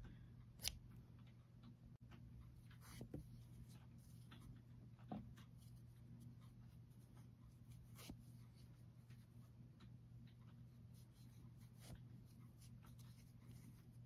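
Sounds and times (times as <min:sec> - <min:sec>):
low steady hum: 0:00.0 - 0:14.0
crochet hook scratching yarn: 0:05.5 - 0:09.4, 0:10.5 - 0:14.0.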